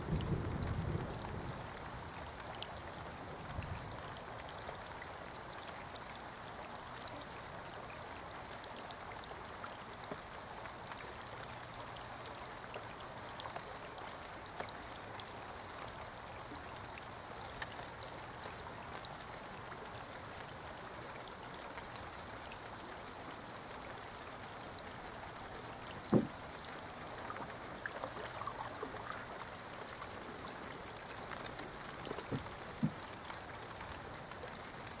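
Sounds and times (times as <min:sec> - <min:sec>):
light rain on water: 0:00.0 - 0:35.0
small knocks: 0:26.0 - 0:26.4, 0:32.2 - 0:33.0
sharp thump: 0:26.1 - 0:26.3.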